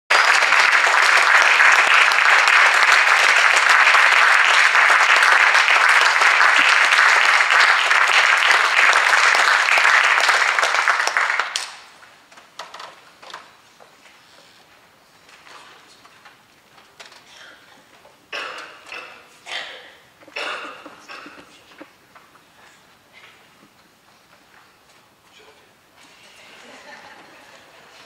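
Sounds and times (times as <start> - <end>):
audience applauding: 0.1 - 12.1.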